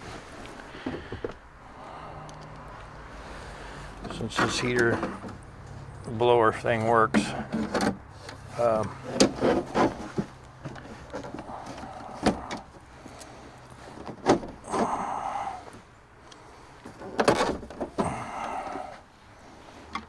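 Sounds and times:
plastic scraping and rubbing: 7.1 - 12.7.

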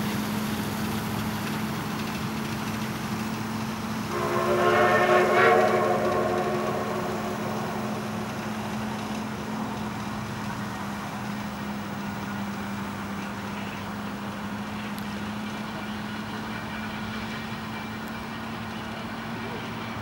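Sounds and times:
distant train engine hum: 0.0 - 20.0
steam locomotive whistle: 3.8 - 9.9.

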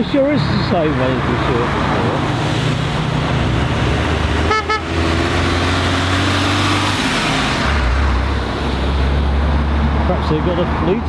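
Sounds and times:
car passing: 0.0 - 11.0.

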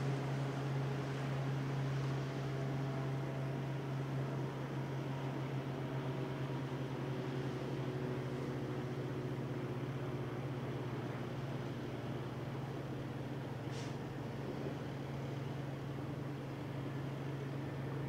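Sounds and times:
marine diesel engine under load: 0.0 - 18.0.

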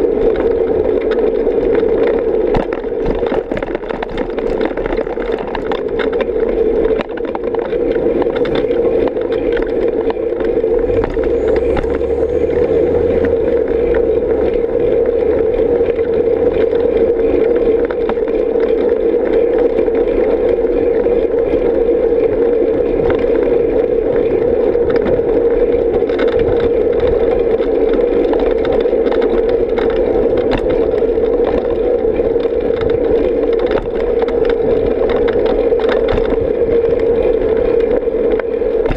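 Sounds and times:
bicycle tyres rolling on asphalt: 0.0 - 38.9
low rumble: 8.0 - 19.9.

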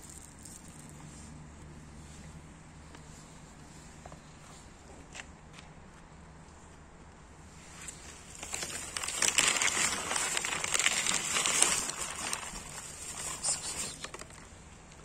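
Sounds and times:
cat crunching dry kibble: 8.2 - 14.5.

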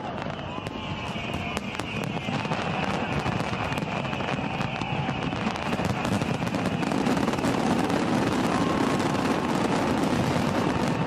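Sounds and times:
firework bangs and crackling: 0.0 - 11.0.

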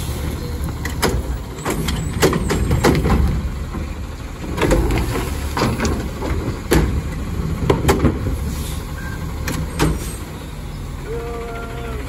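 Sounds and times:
garbage truck engine running: 0.0 - 12.0
clanks and knocks: 0.8 - 8.4.

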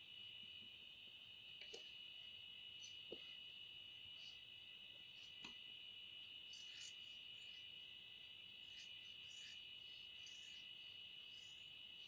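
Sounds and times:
cricket trilling: 0.0 - 12.0
scissors cutting paper: 6.5 - 7.6, 8.6 - 9.6, 10.2 - 10.7.

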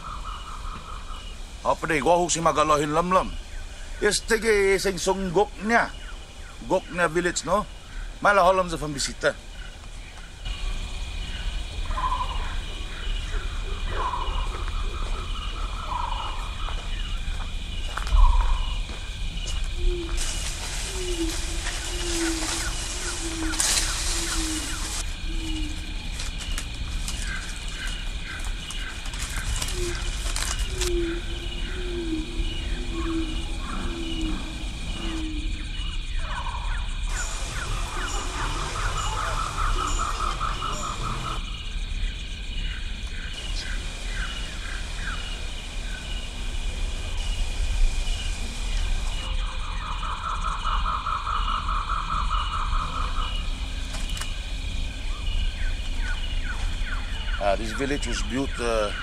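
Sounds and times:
high insect drone: 0.0 - 59.0
rapid pulsed animal call: 3.3 - 17.3, 19.7 - 59.0
low hooting notes: 37.0 - 41.5.

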